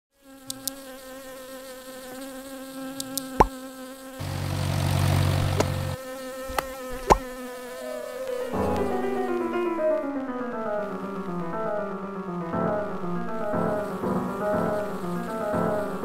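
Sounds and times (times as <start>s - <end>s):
cartoon bee buzzing: 0.2s - 16.0s
sharp pops: 0.4s - 0.8s, 3.0s - 3.6s, 5.3s - 5.9s, 6.5s - 7.4s.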